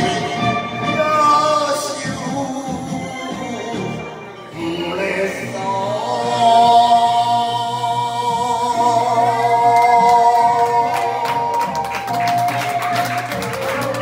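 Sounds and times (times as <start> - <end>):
man singing into a microphone: 0.0 - 11.5
karaoke backing music: 0.0 - 14.0
people clapping: 9.7 - 14.0.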